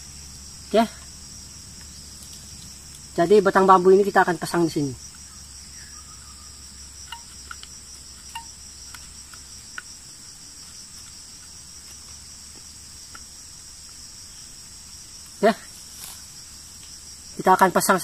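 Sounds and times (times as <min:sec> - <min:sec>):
high-pitched insect chorus: 0:00.0 - 0:18.0
bamboo stick clicking on wood: 0:07.0 - 0:09.9.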